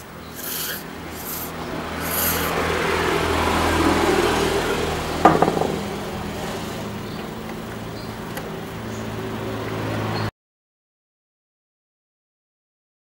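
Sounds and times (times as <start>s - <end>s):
vehicle engine running: 0.0s - 10.3s
aerosol spray hiss: 0.4s - 2.6s
sharp knock: 5.2s - 6.0s.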